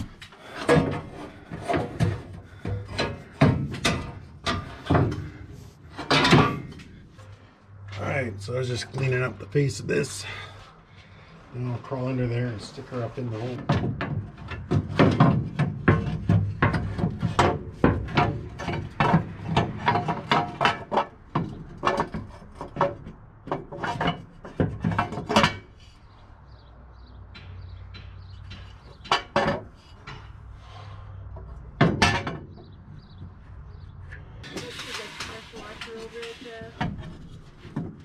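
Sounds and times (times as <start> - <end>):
metal exhaust header knocking: 31.1 - 33.2.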